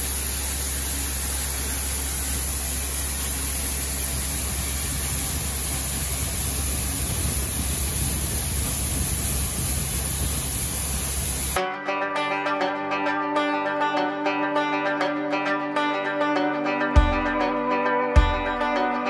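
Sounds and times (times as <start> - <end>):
corn pouring into trailer: 0.0 - 11.6
low machinery hum: 0.0 - 11.6.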